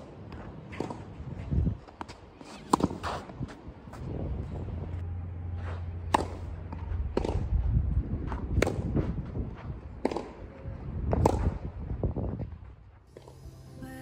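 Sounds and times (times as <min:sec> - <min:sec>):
tennis balls struck by rackets: 0:02.0 - 0:03.4, 0:05.8 - 0:07.6, 0:08.2 - 0:09.2, 0:09.9 - 0:10.5, 0:11.1 - 0:11.7
low steady hum: 0:04.6 - 0:08.2, 0:13.1 - 0:14.0
balls bouncing on clay court: 0:06.1 - 0:11.7.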